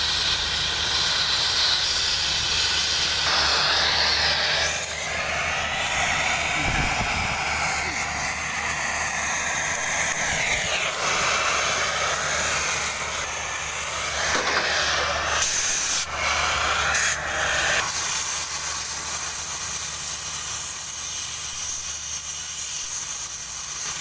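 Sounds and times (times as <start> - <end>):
cutting torch hissing: 0.0 - 24.0.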